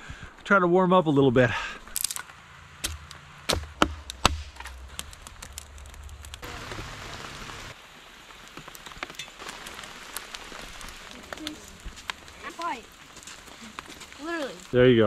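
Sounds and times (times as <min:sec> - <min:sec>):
hatchet splitting wood: 0:02.8 - 0:06.2
rain pattering: 0:04.7 - 0:15.0.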